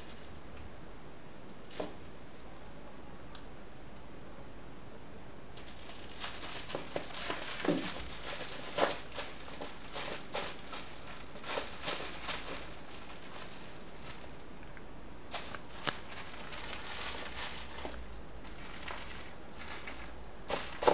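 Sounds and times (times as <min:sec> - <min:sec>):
cat scuffling with toy on tiles: 0:00.0 - 0:00.4, 0:01.6 - 0:02.1, 0:05.6 - 0:14.4, 0:15.3 - 0:20.9.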